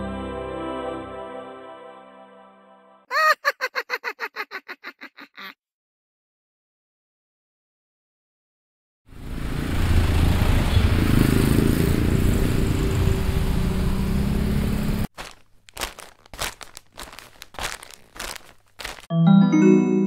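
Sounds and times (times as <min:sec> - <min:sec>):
traffic rumble: 0:09.1 - 0:19.1.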